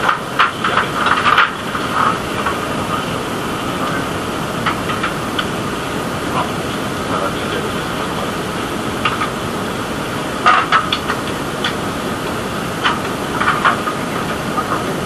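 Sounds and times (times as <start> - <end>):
engine and machinery noise: 0.0 - 15.0.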